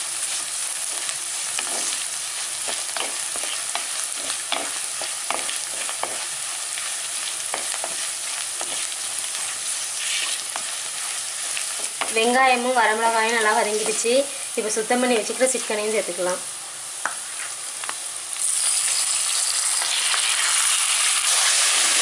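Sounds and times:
shallots sizzling in hot oil: 0.0 - 22.0
wooden spatula scraping a pan: 0.9 - 2.0, 2.7 - 12.3.

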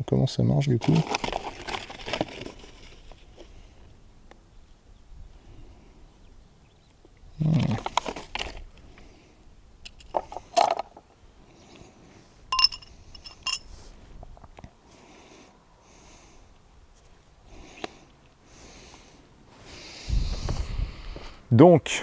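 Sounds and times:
metal parts rustling and knocking: 9.9 - 11.0, 12.5 - 13.7
ringing metallic clinks: 12.5 - 13.7.

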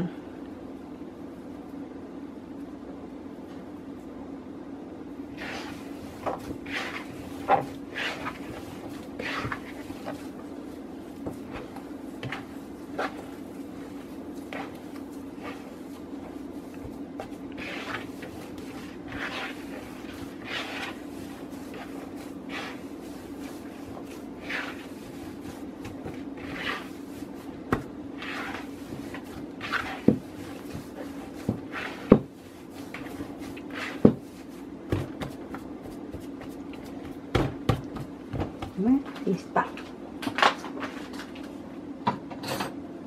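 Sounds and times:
steady low hum: 0.0 - 42.2
hands squishing mashed potato: 5.4 - 39.1.

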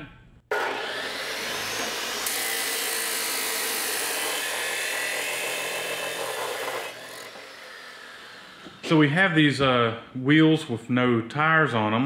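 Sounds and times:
chop saw cutting steel pipe: 0.5 - 8.9.

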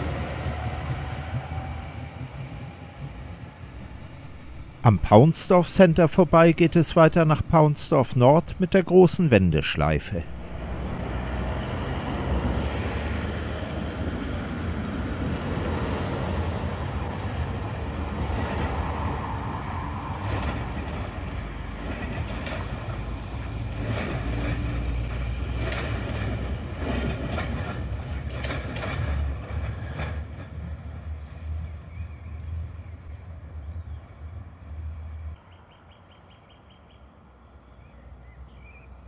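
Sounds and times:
wheels clacking on track: 0.0 - 4.9, 10.3 - 33.3
tram running gear rumbling: 0.0 - 5.3, 10.2 - 35.4.

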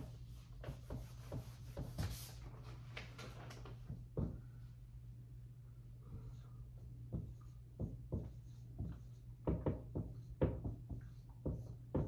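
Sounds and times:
marker writing on whiteboard: 0.0 - 2.4, 6.0 - 12.0
steady low hum: 0.0 - 12.0.

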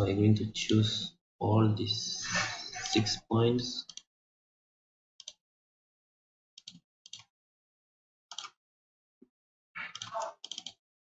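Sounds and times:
computer mouse clicks: 8.3 - 8.6, 9.8 - 10.8.

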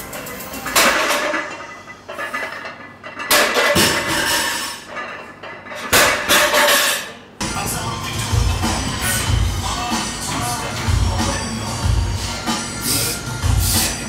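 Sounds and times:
barbell plates clanking: 0.2 - 7.2
barbell crashing down: 0.7 - 5.1, 5.7 - 7.1.

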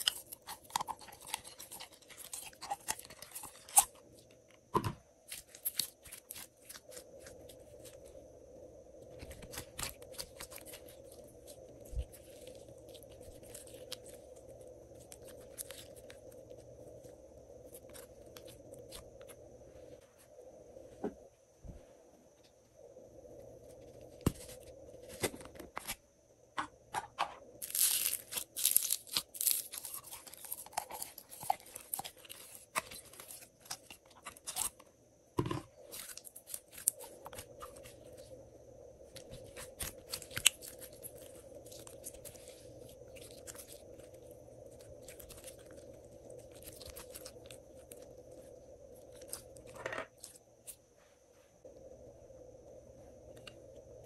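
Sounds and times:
sticky slime crackling and popping: 27.6 - 34.7, 39.3 - 42.5.

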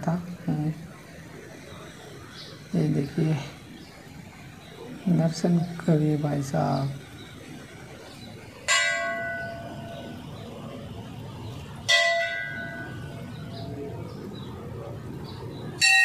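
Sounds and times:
temple bell ringing: 8.7 - 10.5, 11.8 - 14.1, 15.8 - 16.0.

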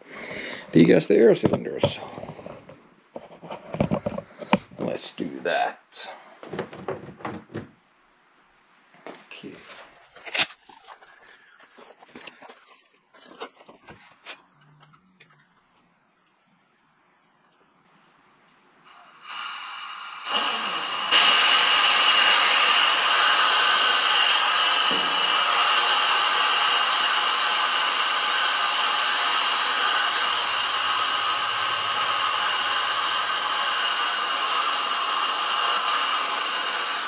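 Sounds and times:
high-pressure air hissing: 18.9 - 37.0.

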